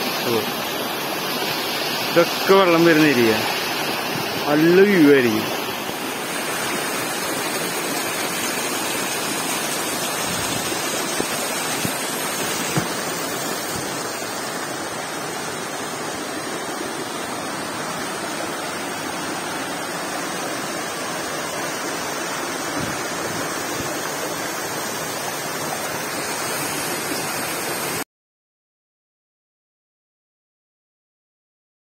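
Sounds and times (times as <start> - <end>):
waterfall rushing over rocks: 0.0 - 28.0.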